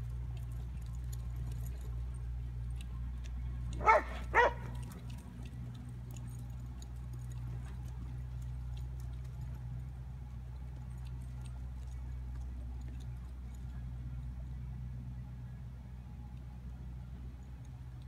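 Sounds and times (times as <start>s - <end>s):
dog barking: 3.8s - 4.8s.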